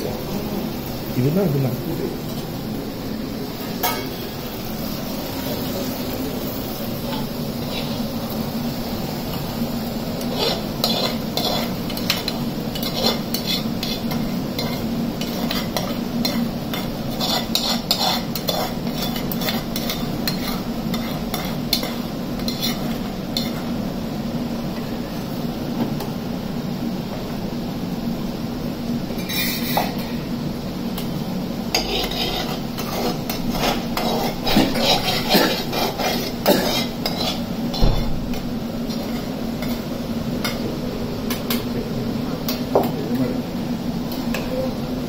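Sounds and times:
metal spoon scraping metal pot: 10.2s - 23.6s, 29.2s - 30.0s, 31.7s - 37.4s.

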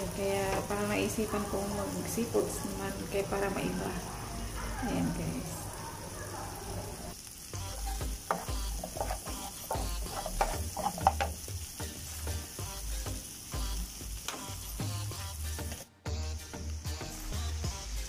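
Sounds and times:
vegetables sizzling in a frying pan: 0.0s - 18.0s
spatula scraping and tapping pan: 7.7s - 11.4s.

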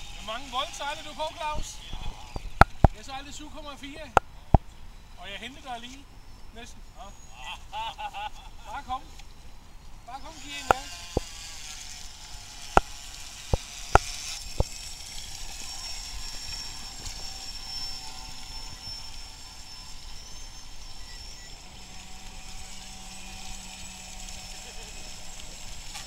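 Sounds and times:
electric motor whine: 0.0s - 7.7s, 8.7s - 26.0s.

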